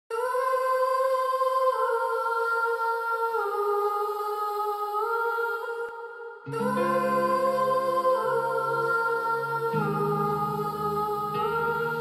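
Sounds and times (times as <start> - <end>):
soft music of held notes: 6.5 - 12.0.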